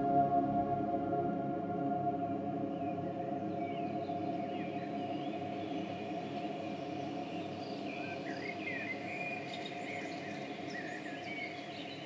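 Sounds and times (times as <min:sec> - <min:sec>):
small birds chirping: 0:03.6 - 0:12.0.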